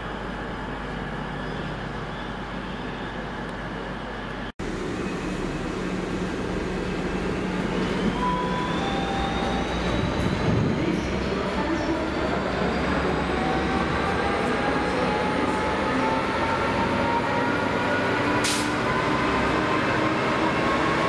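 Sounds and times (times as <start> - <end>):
freight train passing: 0.0 - 21.0.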